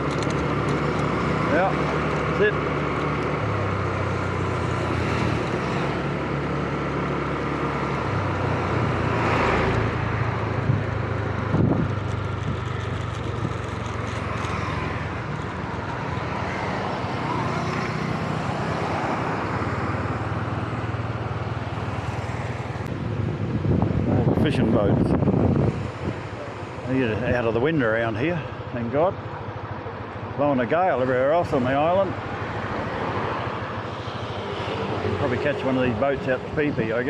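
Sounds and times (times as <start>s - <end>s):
road traffic: 0.0s - 37.0s
motor scooter engine running: 9.9s - 22.6s.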